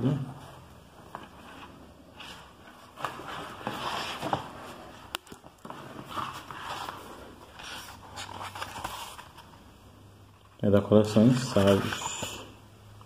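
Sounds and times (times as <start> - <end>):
book paper rustling: 1.0 - 9.7, 10.9 - 12.5.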